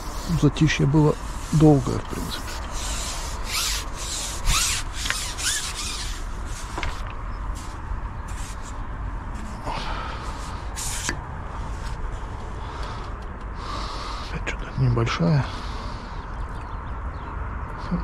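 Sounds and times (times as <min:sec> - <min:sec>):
rubbing and scraping of fishing gear: 0:00.0 - 0:09.6, 0:10.2 - 0:13.2.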